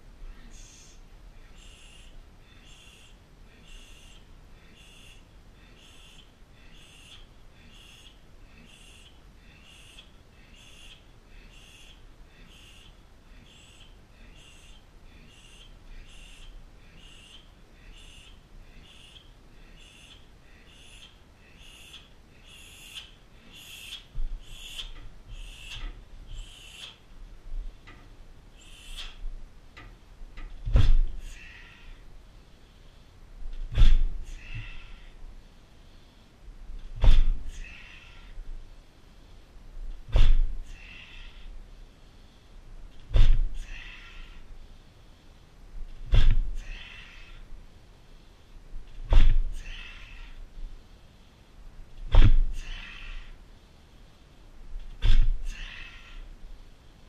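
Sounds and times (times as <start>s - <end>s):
sharp hissing breaths: 0.4s - 27.1s, 28.5s - 29.3s, 30.8s - 48.7s, 49.4s - 57.0s
dull thuds: 30.6s - 31.2s, 33.5s - 34.7s, 36.9s - 37.5s, 40.0s - 40.6s, 43.1s - 43.6s, 46.0s - 46.6s, 49.0s - 49.6s, 52.0s - 52.6s, 54.8s - 55.5s.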